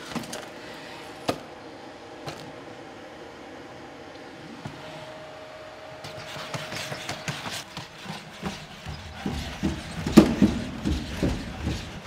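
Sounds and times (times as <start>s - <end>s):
robot feet knocking on wooden steps: 8.4s - 12.0s.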